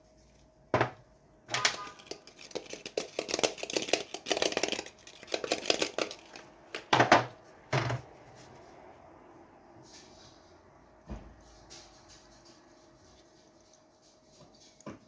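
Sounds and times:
spice shaker rattling: 1.7 - 6.8.

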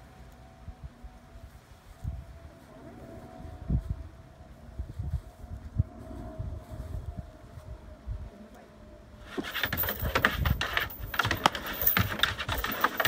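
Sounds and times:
scuffle of thuds and clawing: 9.3 - 13.0.

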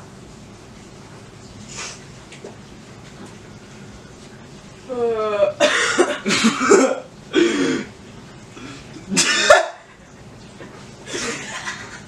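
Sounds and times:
person coughing: 5.4 - 7.9, 9.1 - 9.8.

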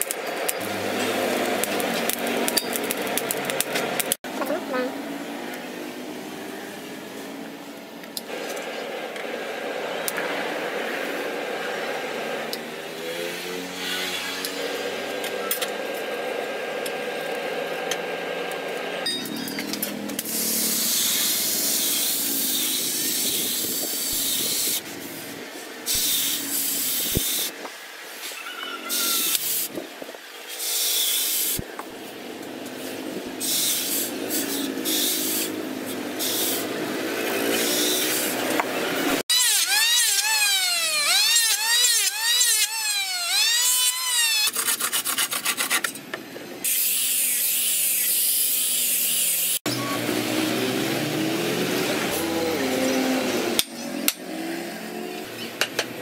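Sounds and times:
hot steel hissing in water: 33.4 - 35.6, 36.2 - 36.7.

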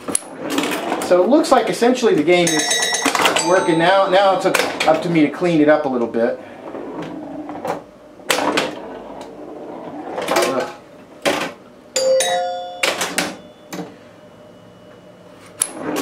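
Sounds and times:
pinball machine clacks: 2.1 - 9.4, 10.0 - 14.0
bell-like tones ringing: 2.4 - 4.6, 12.0 - 15.4.

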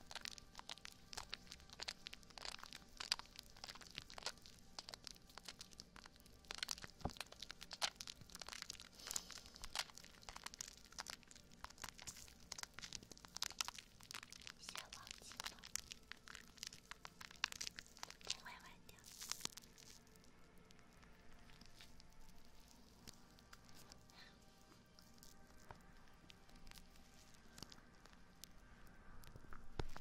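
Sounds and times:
hands squishing foam on microphone: 0.0 - 18.4, 19.0 - 20.0
soapy foam bubbles popping: 0.0 - 28.5, 29.2 - 30.0.

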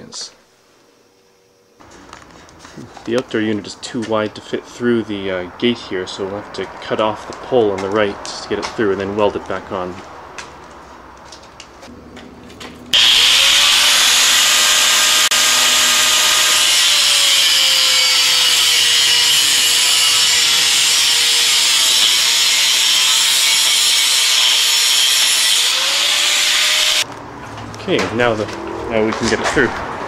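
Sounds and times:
angle grinder cutting steel: 13.0 - 27.1.

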